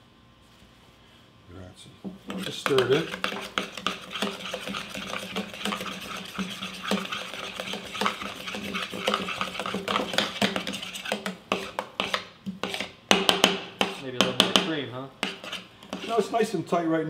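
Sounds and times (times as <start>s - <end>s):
wooden spoon scraping a pot: 2.2s - 13.0s, 13.8s - 14.4s, 15.2s - 16.5s.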